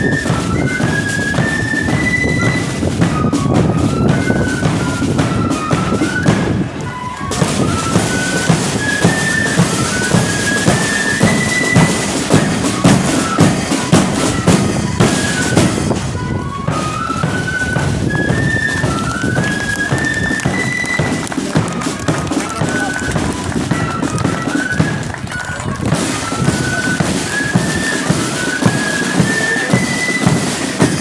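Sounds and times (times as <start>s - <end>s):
flute melody: 0.0s - 31.0s
side drum beats: 0.0s - 31.0s.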